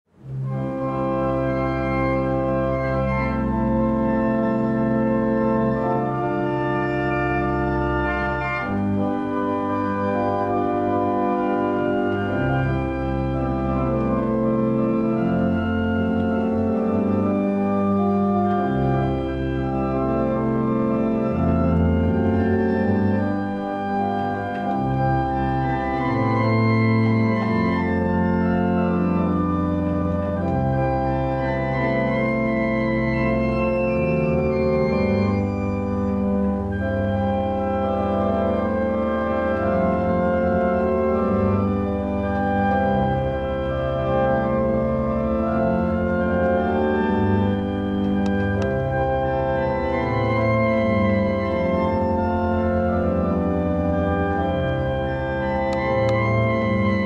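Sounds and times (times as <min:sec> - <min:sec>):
organ playing slow chords: 0:00.2 - 0:57.0.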